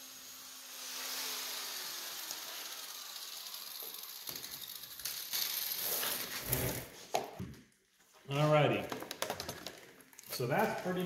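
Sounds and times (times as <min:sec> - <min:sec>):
angle grinder spinning down: 0:00.0 - 0:06.9.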